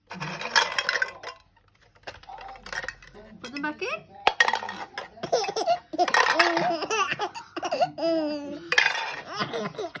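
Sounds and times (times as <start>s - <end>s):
baby laughing: 5.2s - 10.0s.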